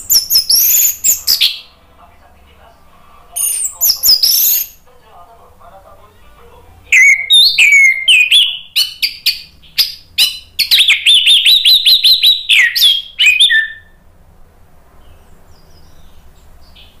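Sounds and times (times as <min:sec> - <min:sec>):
thrush singing: 0:06.1 - 0:13.9.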